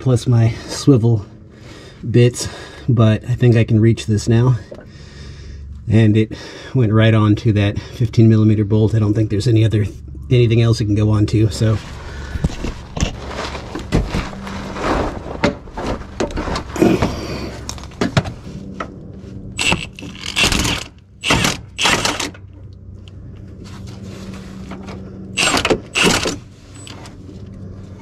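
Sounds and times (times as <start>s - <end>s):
short bursts of noise: 19.6s - 22.3s.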